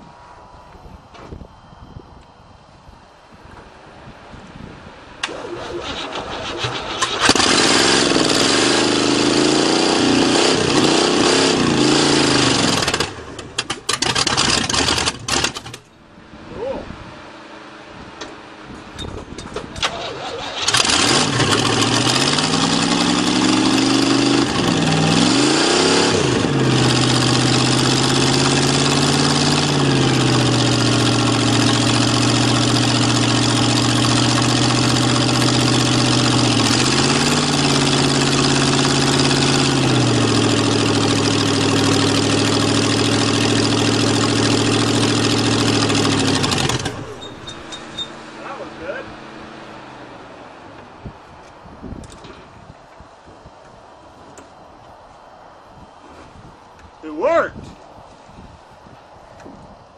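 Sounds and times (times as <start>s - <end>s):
engine starting and revving: 5.2s - 15.9s, 19.0s - 50.2s.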